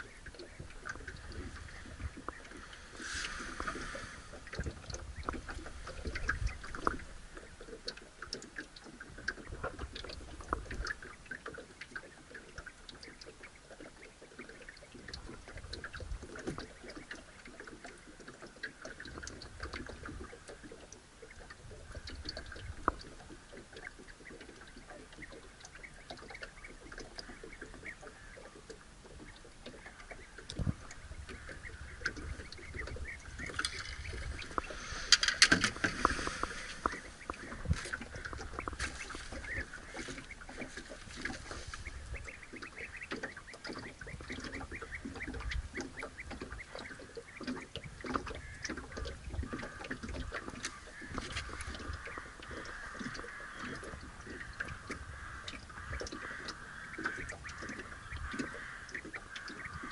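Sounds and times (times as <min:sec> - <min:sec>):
water lapping against boat hull: 0:00.0 - 0:59.9
light clicks and knocks: 0:15.0 - 0:59.9.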